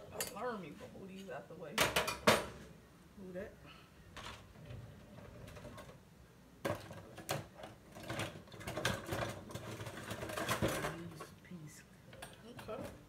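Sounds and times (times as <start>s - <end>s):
utensils clattering: 6.7s - 11.3s.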